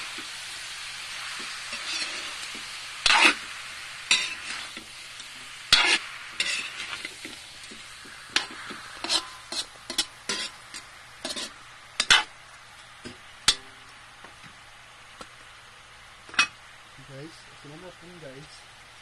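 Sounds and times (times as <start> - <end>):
light frying sizzle: 0.0 - 19.0
spatula scraping a metal wok: 1.3 - 12.3.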